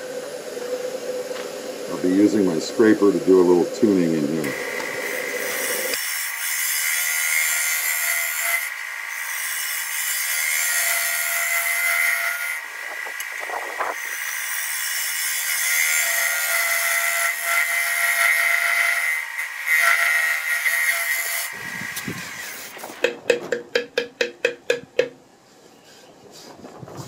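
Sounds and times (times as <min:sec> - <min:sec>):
lathe steady high tone: 0:00.0 - 0:06.0.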